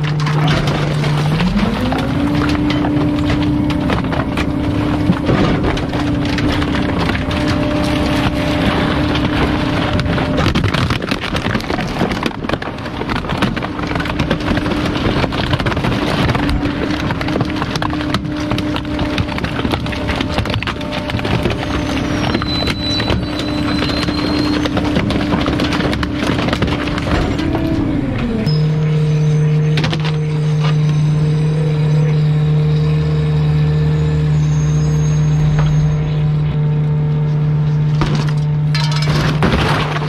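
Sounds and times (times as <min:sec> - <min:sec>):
plastic cracking and crunching: 0:00.0 - 0:28.4, 0:37.8 - 0:40.0
garbage truck hydraulic packer engine: 0:00.0 - 0:40.0.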